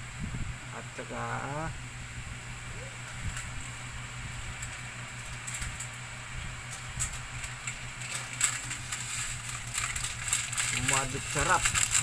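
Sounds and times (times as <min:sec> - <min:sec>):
steady low hum: 0:00.0 - 0:12.0
crinkling: 0:04.5 - 0:12.0.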